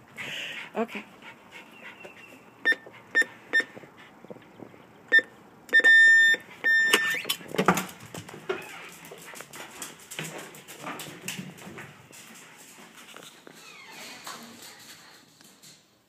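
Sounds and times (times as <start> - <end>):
keypad beeps: 2.6 - 3.7, 5.1 - 7.4.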